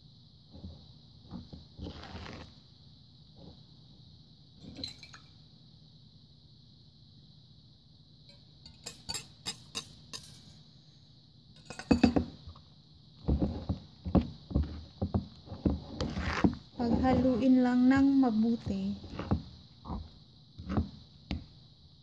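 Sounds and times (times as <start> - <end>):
metal spoon clinking against bowl: 8.7 - 10.5.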